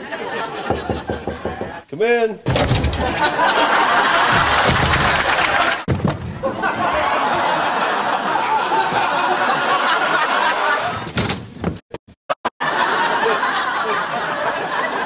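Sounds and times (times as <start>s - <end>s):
studio audience laughing: 0.0s - 1.4s, 3.0s - 11.0s, 12.6s - 15.0s.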